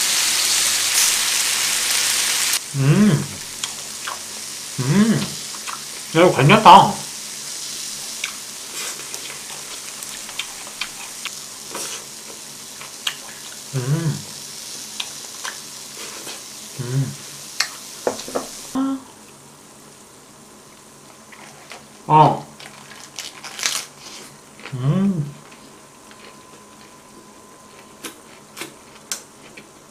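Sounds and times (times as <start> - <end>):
meat sizzling on a griddle: 0.0 - 18.8.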